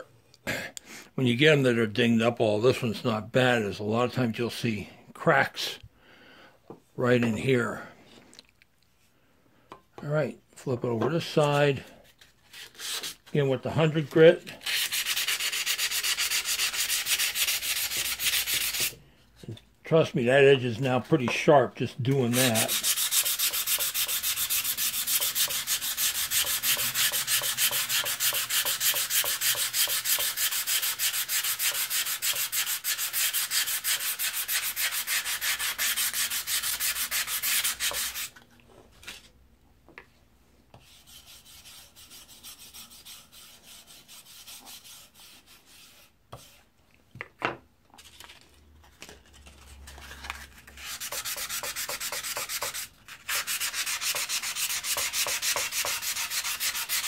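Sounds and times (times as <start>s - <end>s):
sandpaper scratching steel: 14.6s - 18.9s, 22.2s - 38.3s, 40.8s - 46.1s, 50.8s - 57.0s.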